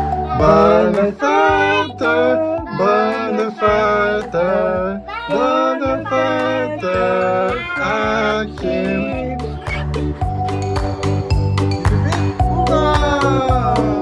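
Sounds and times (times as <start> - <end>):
voices singing held notes: 0.0 - 10.6
low accompaniment: 0.0 - 14.0.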